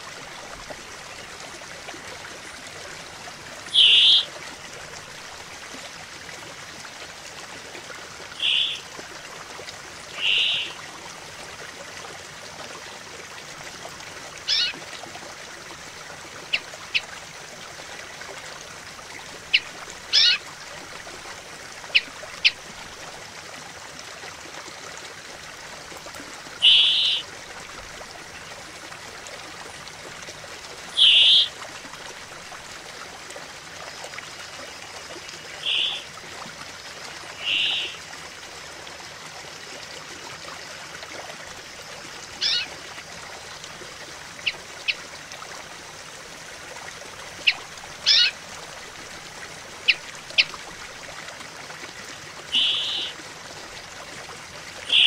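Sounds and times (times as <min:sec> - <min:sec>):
shallow stream babbling: 0:00.0 - 0:55.0
bird singing buzzing notes: 0:03.7 - 0:04.3, 0:08.4 - 0:08.8, 0:10.2 - 0:10.7, 0:26.6 - 0:27.2, 0:31.0 - 0:31.5, 0:35.6 - 0:36.0, 0:37.4 - 0:37.9, 0:52.6 - 0:53.1
short sharp bird calls: 0:03.7 - 0:04.3, 0:08.4 - 0:08.8, 0:10.2 - 0:10.8, 0:26.6 - 0:27.2, 0:31.0 - 0:31.5, 0:35.6 - 0:36.0, 0:37.4 - 0:37.9, 0:52.6 - 0:53.2.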